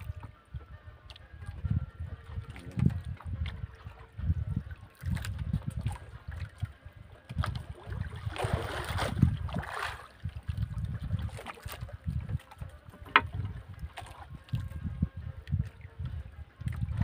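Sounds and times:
water lapping against boat hull: 0:00.0 - 0:17.0
wind on microphone: 0:00.0 - 0:17.0
splashing water: 0:02.1 - 0:14.9.

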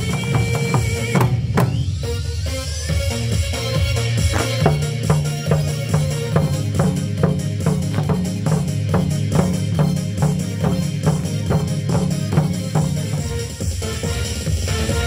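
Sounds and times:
barrel drums beating: 0:04.2 - 0:13.7.

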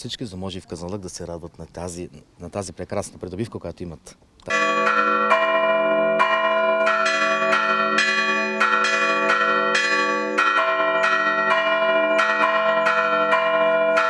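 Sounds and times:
church bells chiming: 0:04.5 - 0:14.0.

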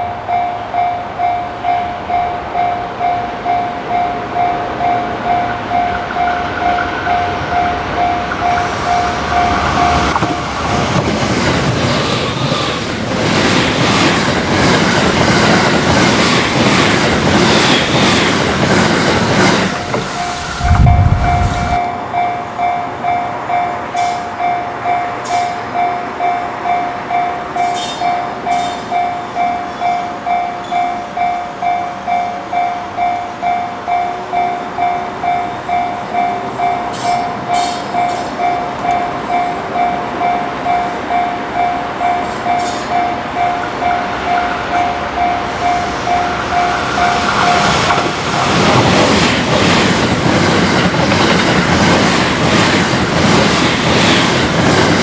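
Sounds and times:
railway warning bell ringing: 0:00.0 - 0:12.5, 0:19.4 - 0:48.2
electric train passing at speed: 0:00.0 - 0:55.0.

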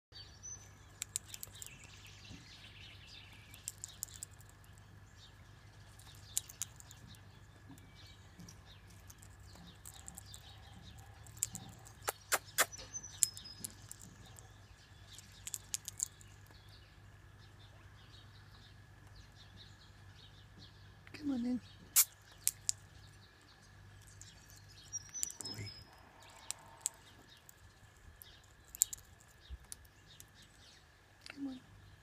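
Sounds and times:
parrot cracking seeds with beak: 0:00.9 - 0:02.0, 0:03.4 - 0:04.7, 0:05.9 - 0:07.2, 0:08.9 - 0:14.4, 0:15.1 - 0:16.6, 0:21.9 - 0:22.8, 0:26.2 - 0:30.4
faint bird chirps: 0:05.2 - 0:32.0.

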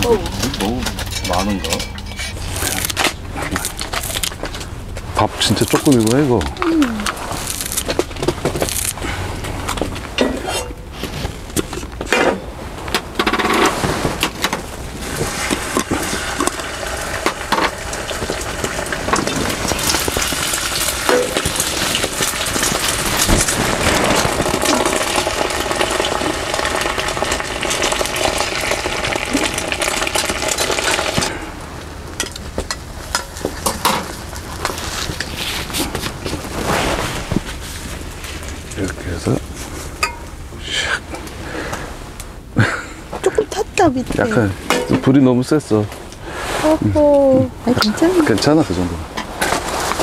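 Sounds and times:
food sizzling in a pan: 0:15.6 - 0:31.3.

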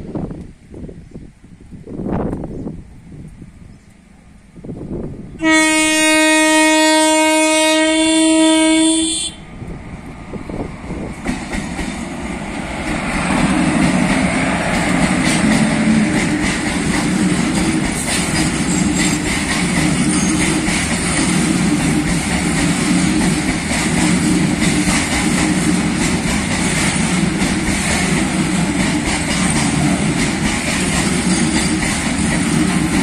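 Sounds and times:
train rumbling and clattering past: 0:00.0 - 0:33.0
locomotive air horn blast: 0:05.4 - 0:09.4.

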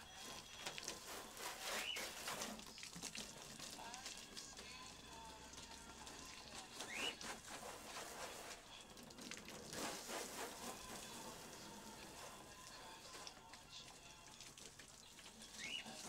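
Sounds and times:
wash mitt scrubbing wet car paint: 0:00.4 - 0:02.7, 0:06.5 - 0:13.3.

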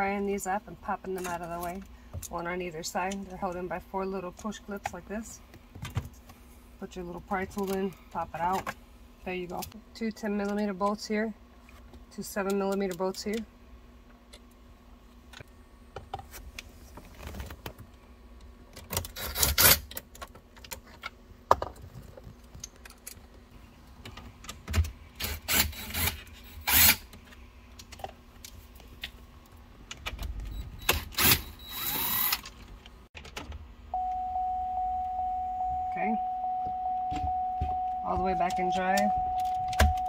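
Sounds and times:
steady single tone: 0:33.9 - 0:40.0.

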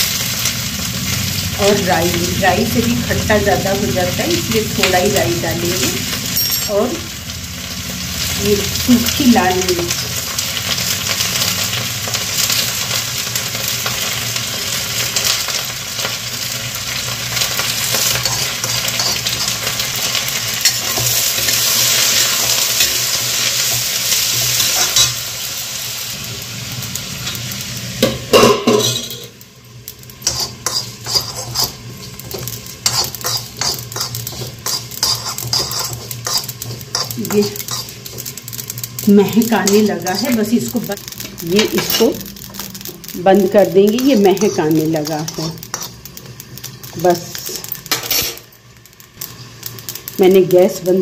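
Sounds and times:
vegetables sizzling in oil: 0:00.0 - 0:51.0
metal spoon scraping and clinking: 0:06.3 - 0:06.9, 0:17.6 - 0:23.0, 0:24.3 - 0:25.2, 0:30.2 - 0:38.3, 0:39.2 - 0:43.0, 0:43.9 - 0:48.4.

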